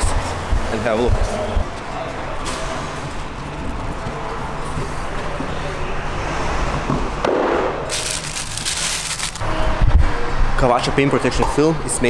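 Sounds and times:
crackly rustling of plastic wrap: 0:07.9 - 0:09.4.

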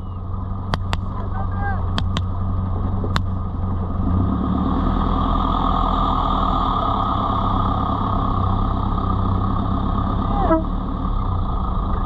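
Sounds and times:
vehicle engine running steadily: 0:00.0 - 0:12.0
sharp click: 0:00.7 - 0:01.1, 0:02.0 - 0:02.3.

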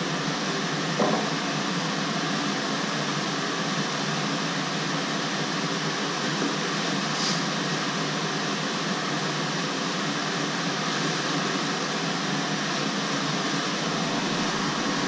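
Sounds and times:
short knock: 0:01.0 - 0:01.3.

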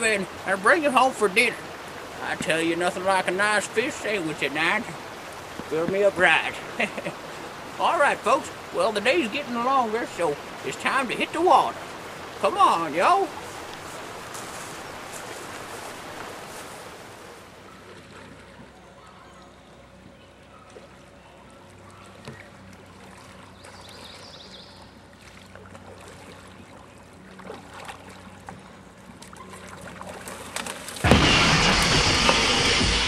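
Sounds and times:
faint creek water: 0:00.0 - 0:33.0
kayak paddle knocks and splashes: 0:05.3 - 0:06.4.

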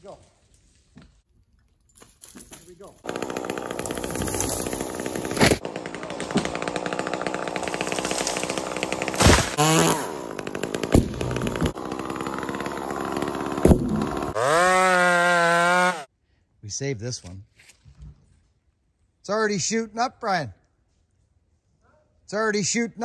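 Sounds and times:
sharp cracks: 0:03.0 - 0:09.9
chainsaw revving while cutting: 0:03.0 - 0:16.1.

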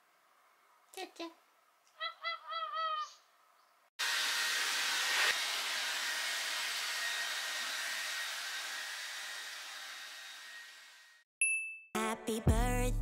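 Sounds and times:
hair dryer running: 0:04.0 - 0:11.2.

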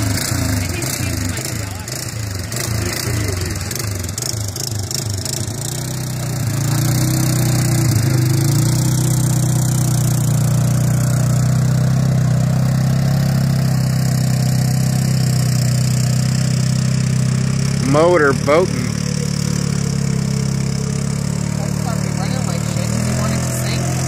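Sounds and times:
atv engine running: 0:00.0 - 0:24.0.

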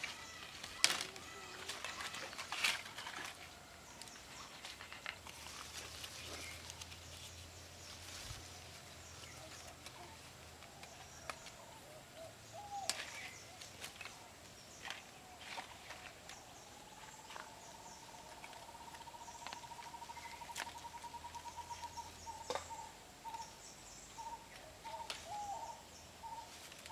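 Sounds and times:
leaf stalks snapping: 0:00.0 - 0:03.4, 0:12.8 - 0:14.2
foliage rustling: 0:00.0 - 0:12.0
faint birds chirping: 0:00.0 - 0:26.9.

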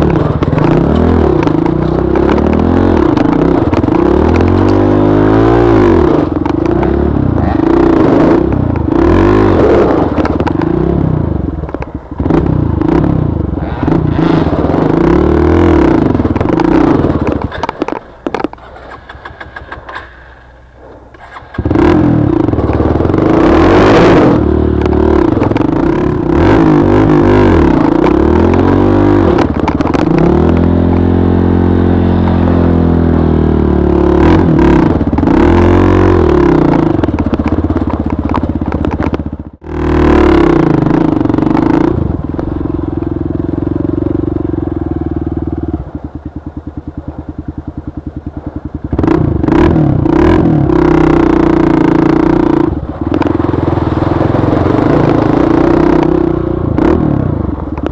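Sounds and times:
dirt bike engine revving: 0:00.0 - 0:20.4, 0:21.2 - 0:57.9.

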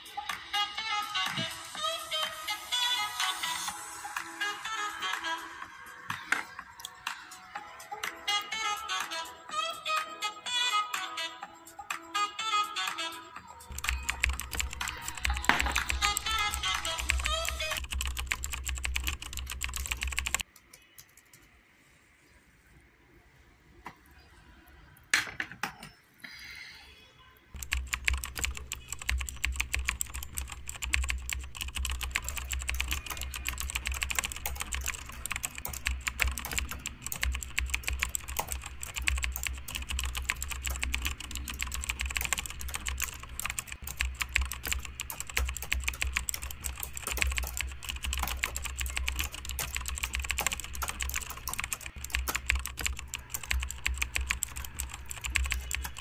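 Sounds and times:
fast typing on laptop keyboard: 0:13.7 - 0:21.5, 0:27.6 - 0:56.0.

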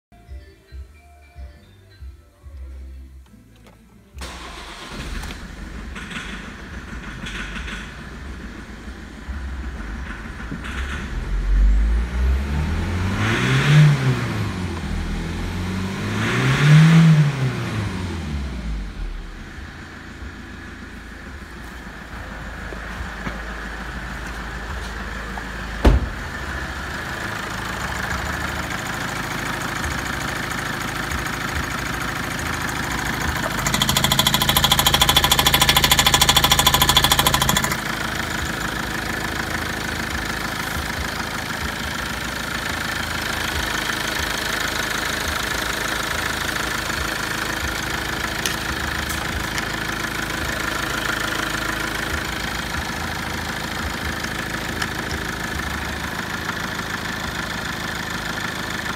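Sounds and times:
diesel engine idling: 0:04.2 - 0:58.9
loud thump: 0:25.8 - 0:26.3.

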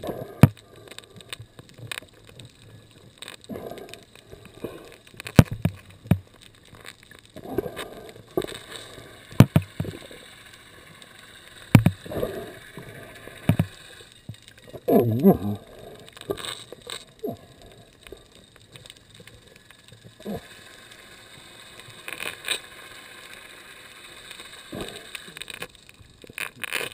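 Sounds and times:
sharp underwater knocks and clicks: 0:00.0 - 0:02.6, 0:03.2 - 0:08.6, 0:09.3 - 0:10.1, 0:11.7 - 0:14.9.

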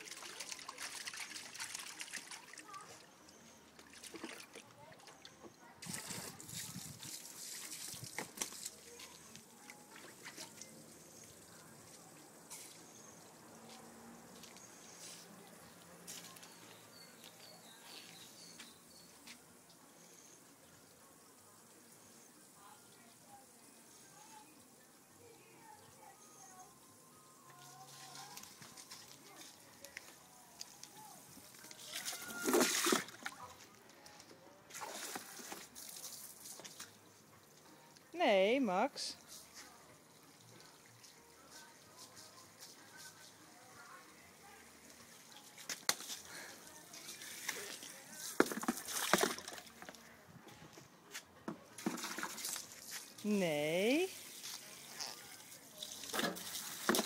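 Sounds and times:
water splashes: 0:00.0 - 0:03.1, 0:31.8 - 0:33.5, 0:47.1 - 0:49.9
garden water spraying: 0:00.0 - 0:04.9, 0:05.6 - 0:33.7, 0:34.7 - 0:50.1, 0:51.8 - 0:57.0.

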